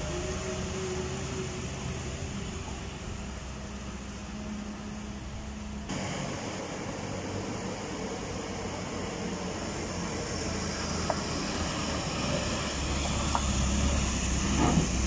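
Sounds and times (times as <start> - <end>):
heavy vehicle engine: 0.0 - 15.0
lorry diesel engine droning: 0.0 - 15.0.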